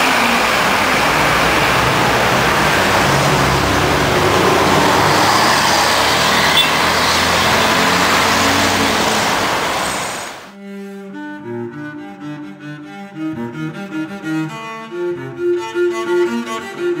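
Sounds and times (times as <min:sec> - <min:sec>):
car passing close by: 0:00.0 - 0:10.5
street traffic rush: 0:00.0 - 0:10.5.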